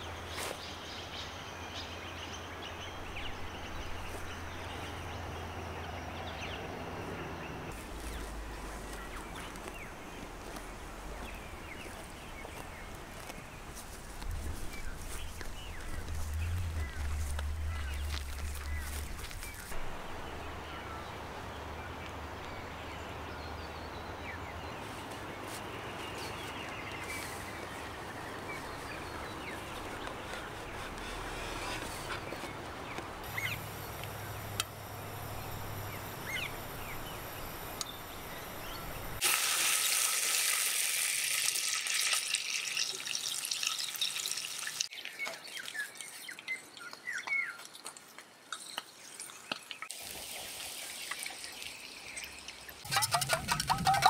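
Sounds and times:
birds chirping: 0:00.0 - 0:39.2, 0:50.9 - 0:54.0
water: 0:39.2 - 0:54.0.

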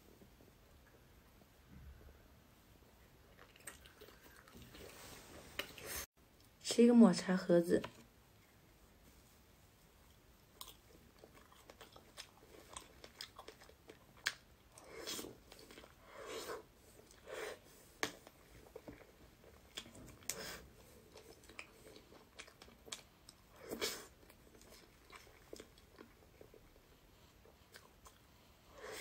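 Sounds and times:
wet chewing: 0:03.2 - 0:06.1, 0:10.1 - 0:28.3.

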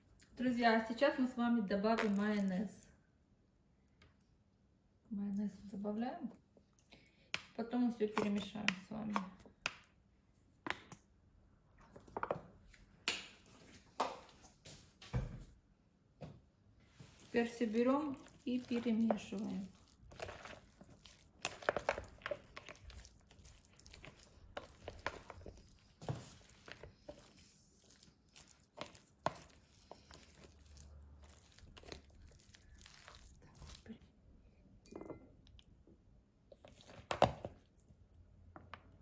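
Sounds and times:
cabbage crunching: 0:17.2 - 0:34.0.

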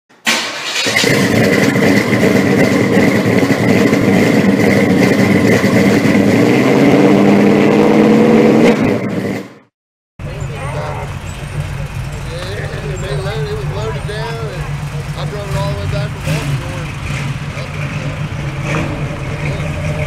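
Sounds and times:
car engine running loudly: 0:00.8 - 0:20.0.

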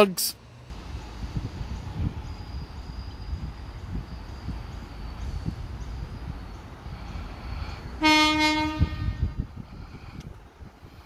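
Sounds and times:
wind rumbling on microphone: 0:00.7 - 0:11.0
train horn blast: 0:08.0 - 0:09.4.

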